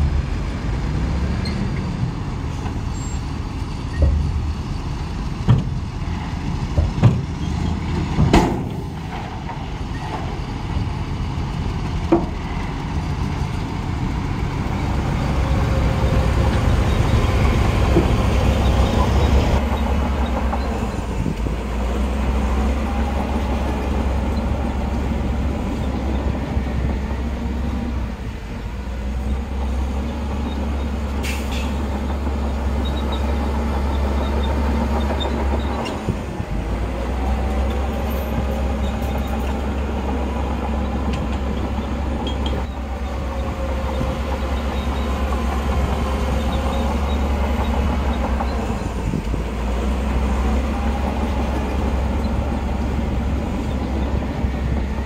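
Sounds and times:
diesel machinery engine drone: 0:00.0 - 0:55.0.

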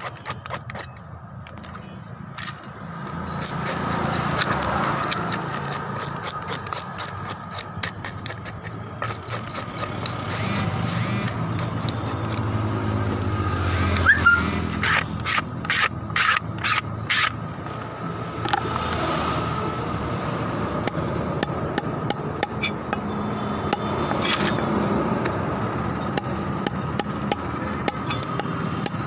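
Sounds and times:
knife scraping fish scales: 0:00.0 - 0:01.0, 0:01.7 - 0:12.5, 0:13.8 - 0:17.4.

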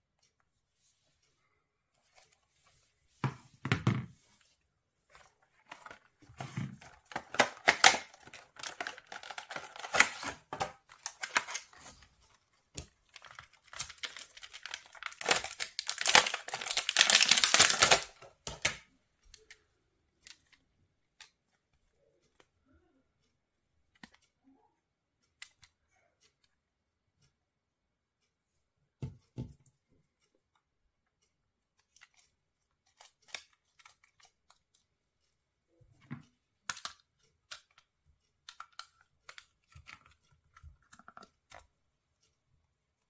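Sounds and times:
plastic packaging crinkling: 0:05.6 - 0:12.0, 0:13.0 - 0:18.7.

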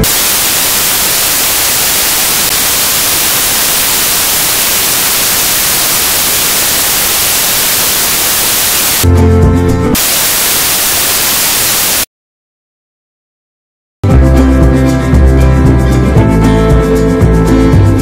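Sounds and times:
white noise static hiss: 0:00.0 - 0:09.0, 0:10.0 - 0:12.1.

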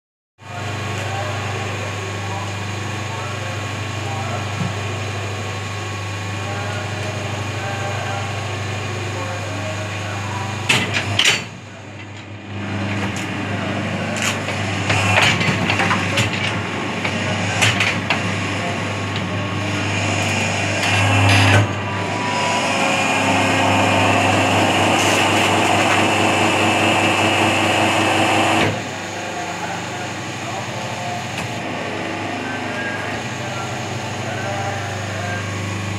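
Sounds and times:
hydraulic unit humming: 0:00.4 - 0:35.9.

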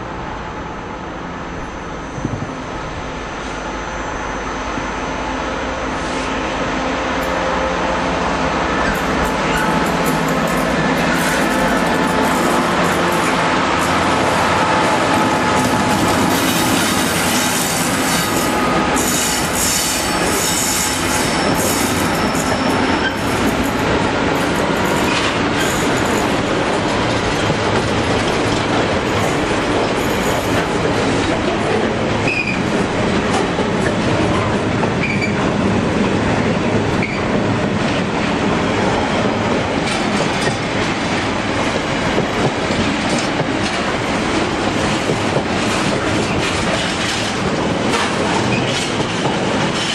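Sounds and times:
diesel locomotive passing: 0:00.0 - 0:49.9
freight train rumbling past: 0:00.0 - 0:49.9
high wheel squeals: 0:15.1 - 0:23.4, 0:35.0 - 0:35.4
wheels clacking over rail joints: 0:42.1 - 0:49.9.

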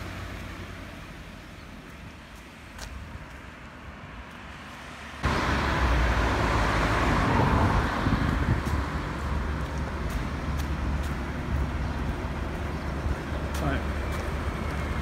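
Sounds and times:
road traffic: 0:00.0 - 0:15.0
vehicle passing close by: 0:04.5 - 0:15.0.

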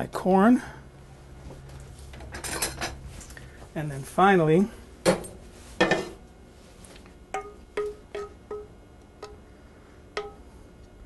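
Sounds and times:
metal ladle knocking saucepan: 0:07.4 - 0:08.7, 0:10.2 - 0:10.4.

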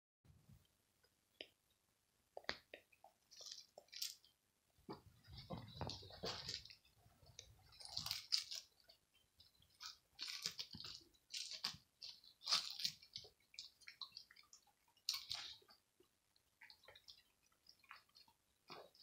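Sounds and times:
dog chewing: 0:05.3 - 0:15.8.

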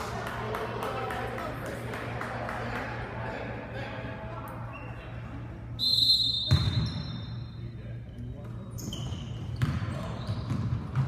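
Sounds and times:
shoes squeaking: 0:08.1 - 0:11.0.

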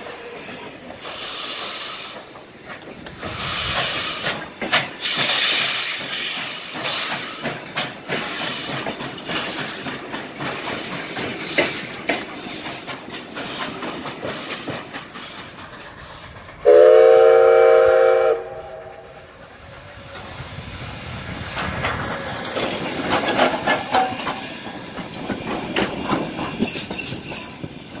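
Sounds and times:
steam hissing: 0:00.0 - 0:28.0
train wheels clickety-clack: 0:00.0 - 0:28.0
locomotive running gear clanking: 0:00.1 - 0:16.6, 0:19.5 - 0:28.0
steam locomotive whistle: 0:16.6 - 0:19.2.

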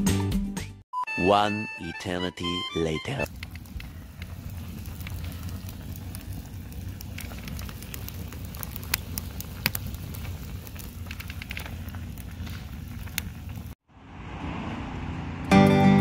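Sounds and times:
campfire crackling and popping: 0:03.2 - 0:13.8
steady low rumble: 0:03.3 - 0:13.8.

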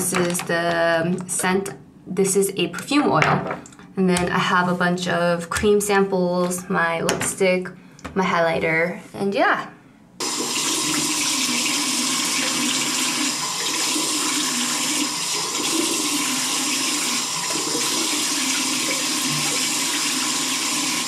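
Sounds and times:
tap water running into sink: 0:10.2 - 0:21.0.

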